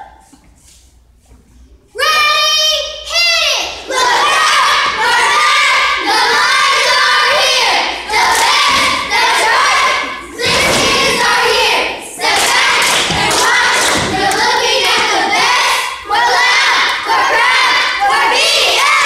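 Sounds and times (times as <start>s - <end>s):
girls chanting a cheer: 2.0s - 19.0s
stomping and jumping thumps: 10.4s - 11.4s.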